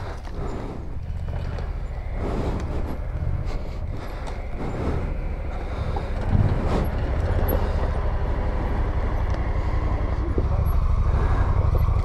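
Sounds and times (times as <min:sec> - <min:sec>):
atv engine running: 0:00.0 - 0:12.0
heavy thump: 0:06.2 - 0:07.0.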